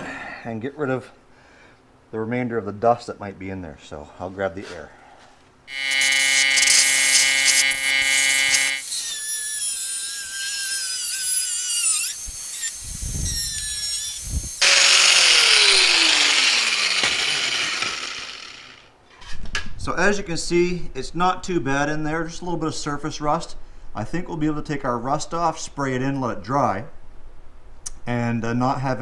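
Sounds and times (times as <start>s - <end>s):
cut-off wheel cutting metal: 5.7s - 18.9s.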